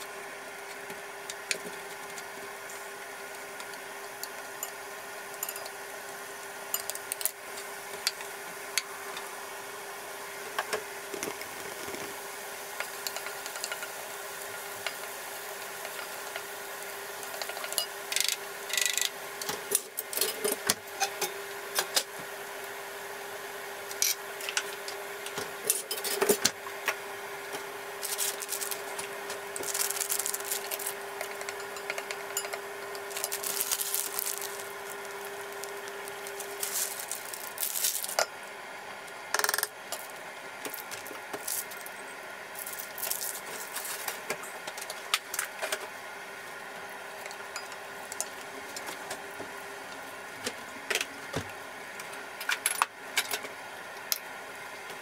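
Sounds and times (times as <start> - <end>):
faint steady hum: 0.0 - 55.0
dishes and utensils clinking: 31.3 - 33.4.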